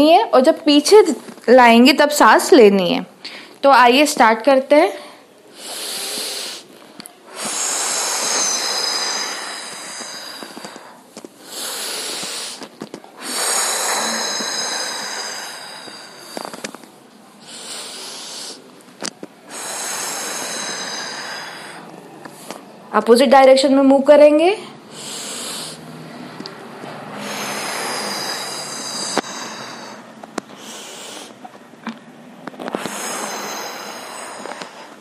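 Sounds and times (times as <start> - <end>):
woman breathing deeply: 5.0 - 18.7, 19.4 - 22.7, 24.6 - 31.5, 32.6 - 35.0.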